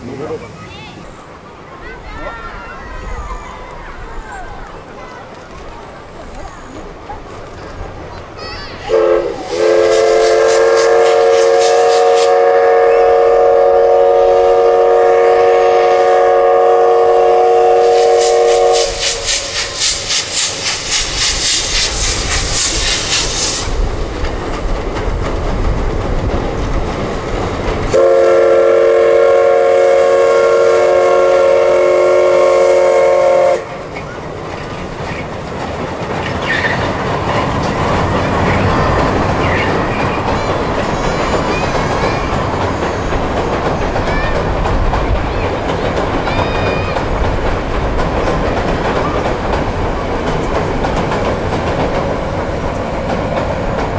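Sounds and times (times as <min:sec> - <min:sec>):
train rumbling: 0:00.0 - 0:53.9
steam whistle: 0:08.9 - 0:20.1, 0:27.9 - 0:33.7
steam locomotive exhaust chuffs: 0:08.9 - 0:53.9.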